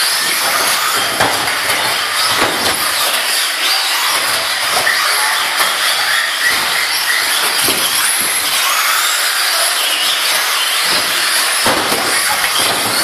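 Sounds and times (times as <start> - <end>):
rc car motors whining: 0.0 - 13.0
short thumps: 0.4 - 3.0.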